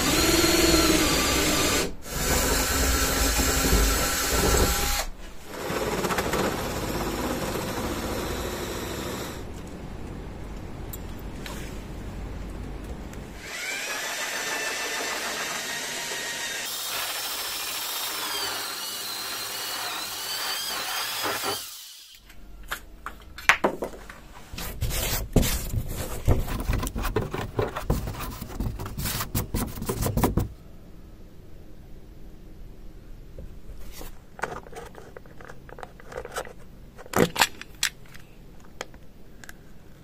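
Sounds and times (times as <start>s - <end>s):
drill motor whine: 0.0s - 5.1s, 13.4s - 22.2s.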